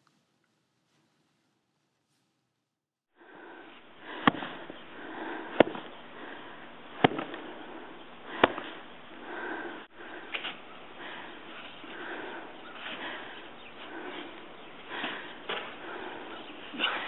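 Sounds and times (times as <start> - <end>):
snow shovel blade knocking: 7.0 - 7.5.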